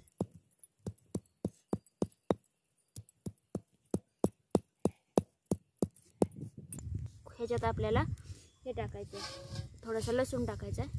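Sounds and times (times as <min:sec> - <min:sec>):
stone pestle pounding on stone: 0:00.0 - 0:02.4, 0:03.2 - 0:06.4.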